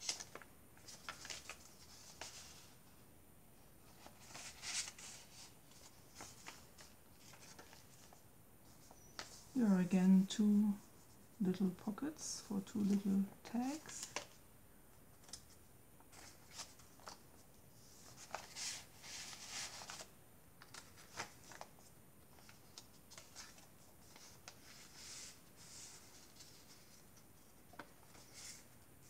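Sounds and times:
paper pages turning and rustling: 0.0s - 2.8s, 3.8s - 9.6s, 13.7s - 14.4s, 15.1s - 28.8s.

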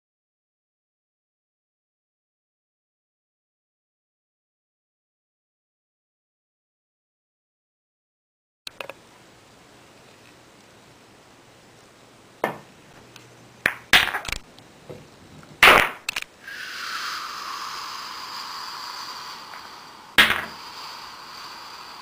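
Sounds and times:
billiard balls clacking: 13.6s - 16.1s, 20.2s - 20.6s
billiard ball rolling: 19.5s - 20.8s.

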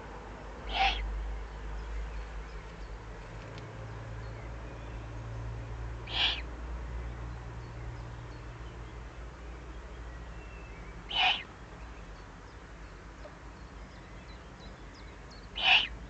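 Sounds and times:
owl chick rasping begging call: 0.7s - 1.1s, 6.1s - 6.5s, 11.0s - 11.5s, 15.5s - 16.0s.

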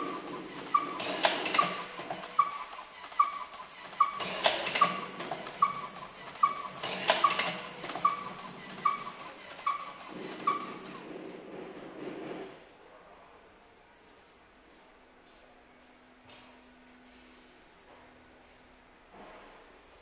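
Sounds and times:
machine clattering strokes: 0.0s - 12.5s.

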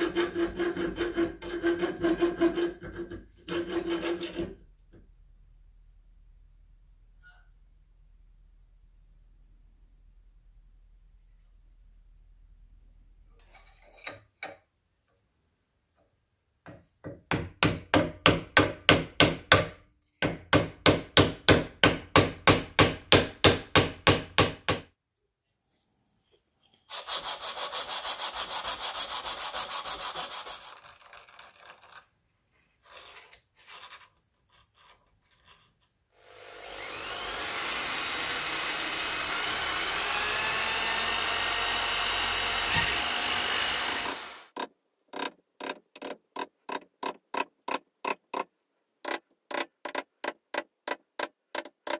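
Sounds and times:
wooden block rubbed on sandpaper: 26.2s - 32.0s
electric drill boring into wood: 36.2s - 44.6s.

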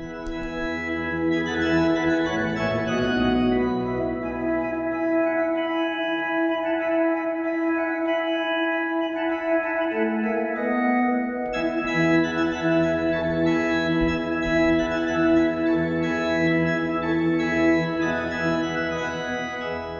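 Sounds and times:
organ pedal bass line: 0.0s - 6.7s, 9.9s - 19.9s
electronic organ chords: 0.0s - 19.9s.

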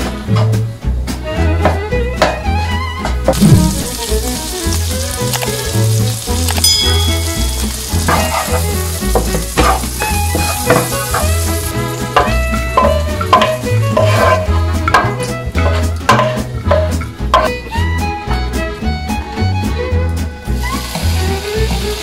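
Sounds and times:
background music with bass beat: 3.3s - 4.8s
bacon sizzling in a pan: 3.3s - 14.5s, 20.6s - 22.0s.

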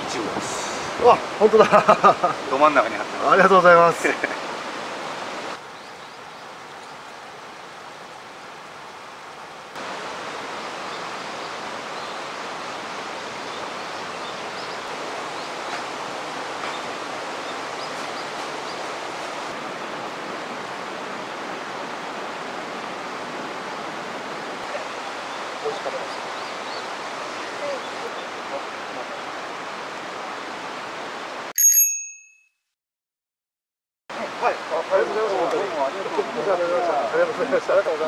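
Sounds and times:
river rushing over rocks: 0.0s - 31.5s, 34.1s - 38.0s.

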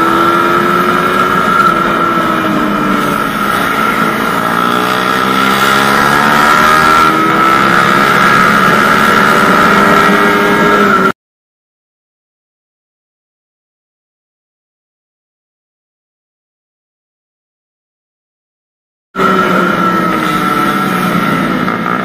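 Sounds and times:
motorcycle engine running hard: 0.0s - 11.1s, 19.2s - 22.0s
steady high whine: 0.0s - 11.1s.

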